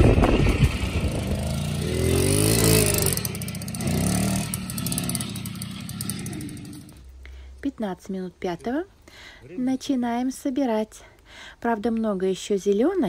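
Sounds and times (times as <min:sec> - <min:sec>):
motorcycle engine revving: 0:00.0 - 0:07.0.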